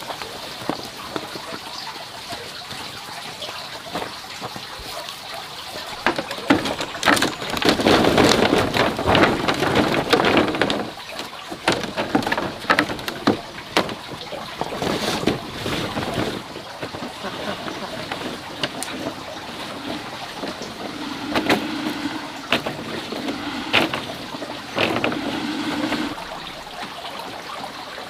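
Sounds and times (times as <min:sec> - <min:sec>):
ginger clattering onto bamboo floor: 0:05.8 - 0:26.9.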